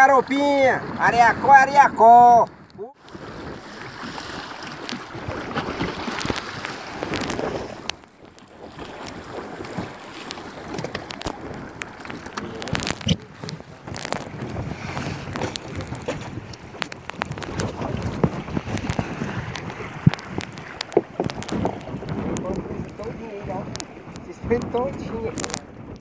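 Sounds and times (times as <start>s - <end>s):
water splashing along boat hull: 0.0s - 26.0s
wind buffeting microphone: 0.0s - 26.0s
knocks and clicks: 14.9s - 23.0s.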